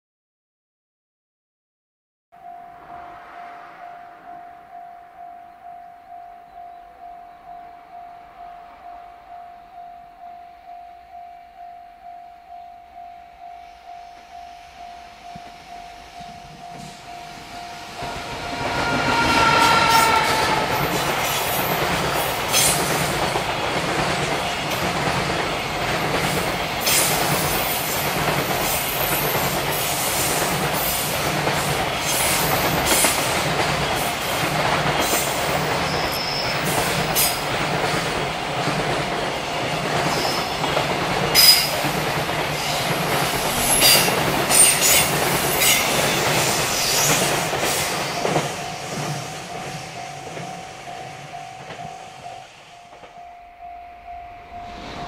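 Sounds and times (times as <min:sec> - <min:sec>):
locomotive whine: 0:02.4 - 0:24.8, 0:42.6 - 0:55.0
high wheel squeals: 0:15.6 - 0:22.8, 0:35.0 - 0:37.4.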